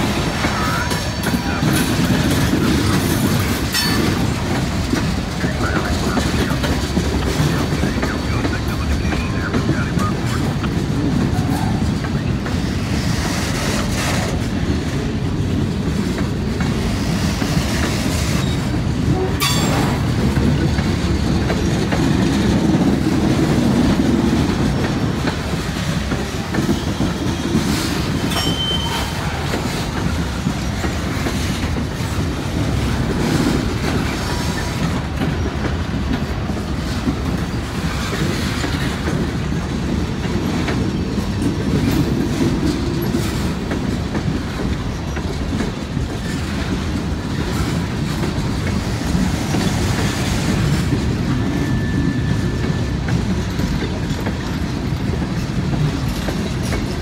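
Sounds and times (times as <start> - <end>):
freight train rumble: 0.0 - 57.0
wheels clacking over rail joints: 0.0 - 57.0
high wheel squeal: 28.3 - 29.3.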